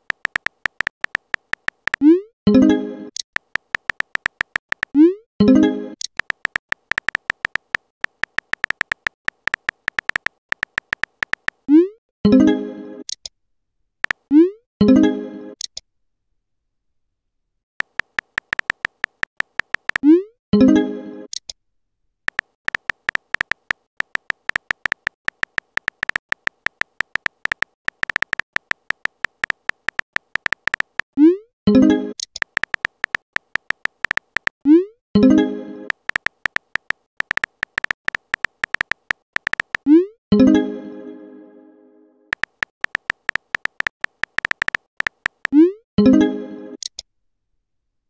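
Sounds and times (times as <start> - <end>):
keyboard tap clicks with beeps: 0.0 - 2.2, 3.4 - 11.8, 17.8 - 20.1, 22.3 - 31.2, 32.2 - 34.6, 35.9 - 40.0, 42.3 - 46.1.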